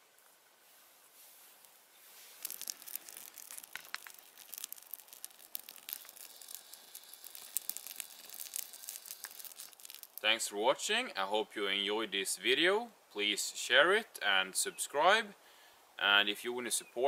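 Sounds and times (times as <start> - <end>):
small fire crackling and popping: 0.0 - 11.2.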